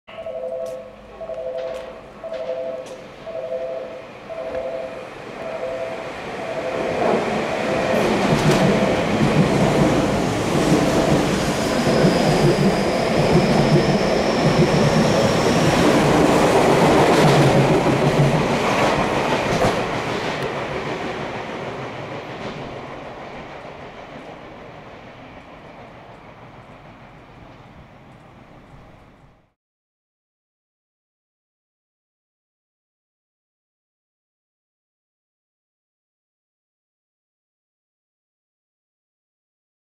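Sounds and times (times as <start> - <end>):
two-tone signal: 0.1 - 9.1
high whine: 0.1 - 9.4
electric train passing: 0.1 - 29.5.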